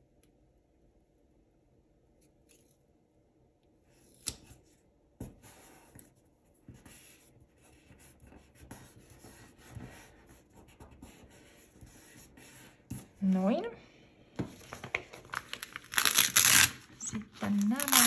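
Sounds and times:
paper rustling: 14.4s - 18.0s.

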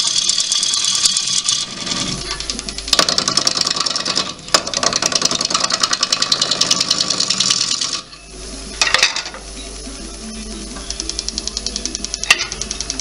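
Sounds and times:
gouge cutting wood on lathe: 0.0s - 8.1s
lathe motor hum: 0.0s - 13.0s.

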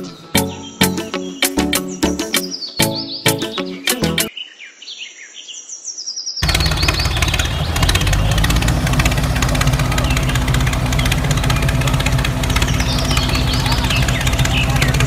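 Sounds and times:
faint bird chirps: 0.4s - 8.0s, 12.4s - 15.0s
engine chugging: 6.4s - 15.0s.

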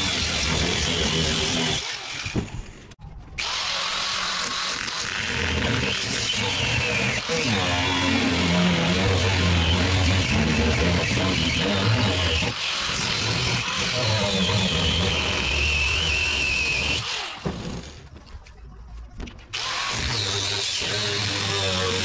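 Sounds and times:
power tool cutting metal whine: 3.4s - 17.8s, 19.6s - 22.0s.

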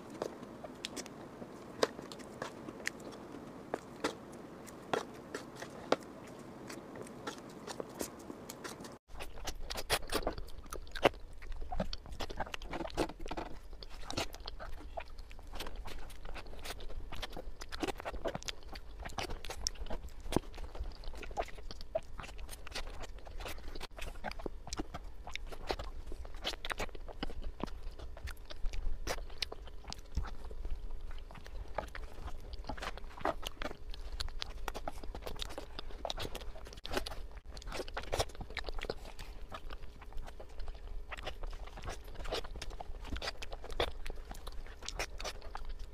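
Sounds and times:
person chewing cake: 0.0s - 45.9s.

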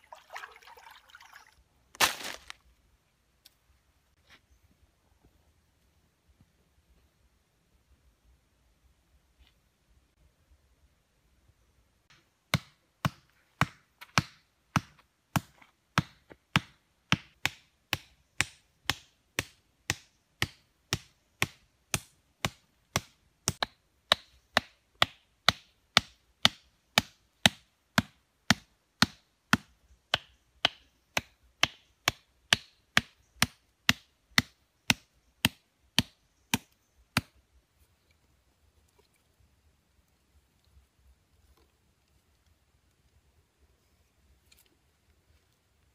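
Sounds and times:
machete chopping wooden stakes: 2.0s - 2.5s, 12.1s - 37.4s.

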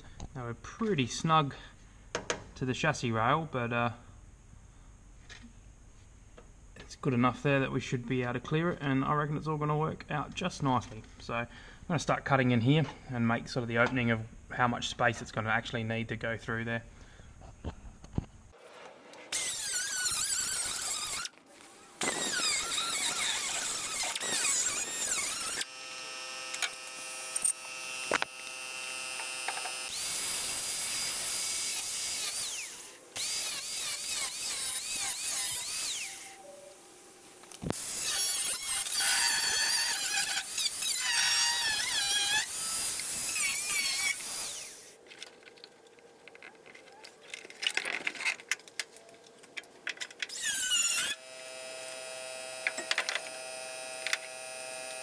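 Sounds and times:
grinder disc cutting steel: 19.3s - 36.4s, 37.6s - 45.0s, 50.3s - 55.0s.

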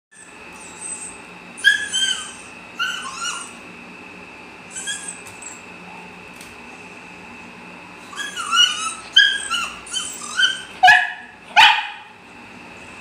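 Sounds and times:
dog whining: 0.1s - 3.7s, 4.7s - 6.2s, 8.0s - 12.1s.

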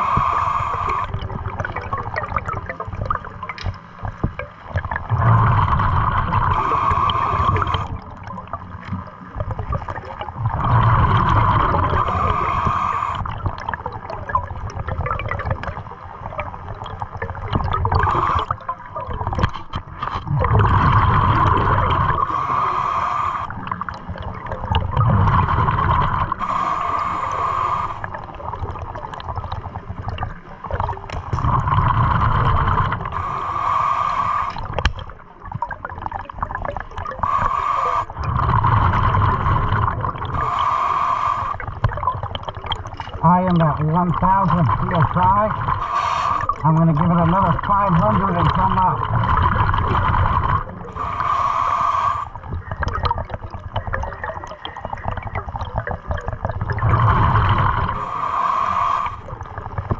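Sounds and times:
regulator inhale hiss: 0.0s - 1.2s, 5.5s - 7.9s, 11.8s - 13.4s, 18.0s - 18.6s, 22.2s - 23.7s, 26.2s - 28.2s, 32.4s - 34.8s, 37.2s - 39.7s, 40.3s - 41.8s, 45.6s - 46.6s, 49.9s - 52.5s, 57.1s - 59.5s
exhaled bubbles gurgling: 0.0s - 59.9s.

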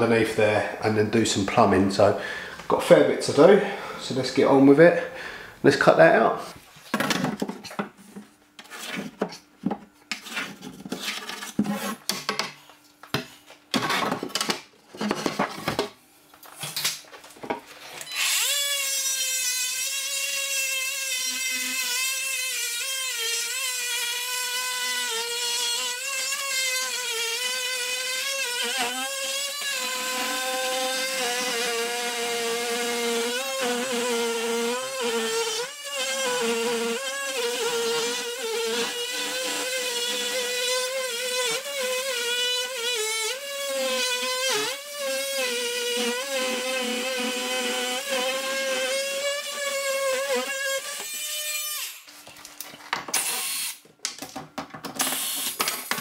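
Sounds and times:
oscillating multi-tool buzzing: 18.0s - 52.1s, 53.1s - 53.8s.

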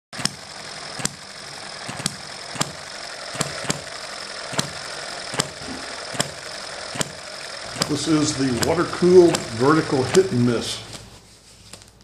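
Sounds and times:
mechanical clatter: 0.2s - 10.5s
model engine firing pops: 1.9s - 3.9s, 4.5s - 7.2s.

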